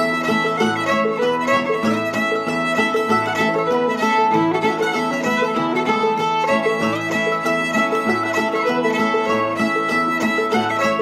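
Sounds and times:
fiddle lead: 0.0s - 11.0s
plucked string rhythm: 0.0s - 11.0s.

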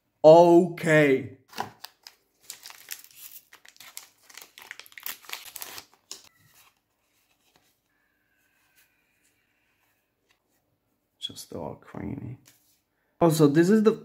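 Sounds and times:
foil pack crinkling: 1.7s - 6.3s.

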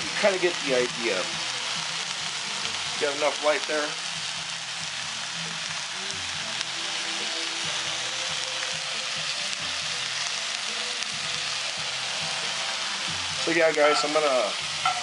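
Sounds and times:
onions sizzling in a skillet: 0.0s - 15.0s.

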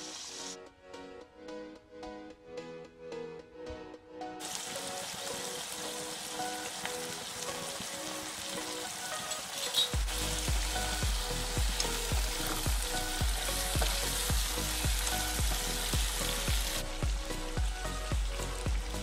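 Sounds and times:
food sizzling in frying pan: 0.0s - 0.6s, 4.4s - 19.0s
background music with steady beat: 0.0s - 19.0s.

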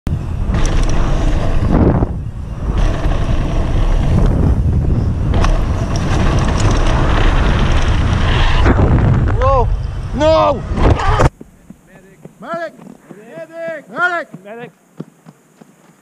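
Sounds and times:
wind buffeting microphone: 0.1s - 13.0s
tyres hissing on dirt: 0.2s - 16.0s
bike knocking: 2.6s - 8.0s.

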